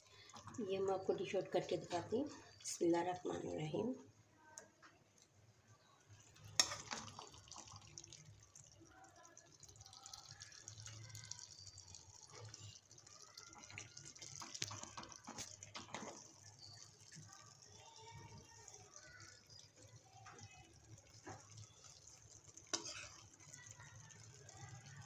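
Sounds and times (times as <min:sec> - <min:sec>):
ladle stirring thick curry: 0:09.5 - 0:25.0.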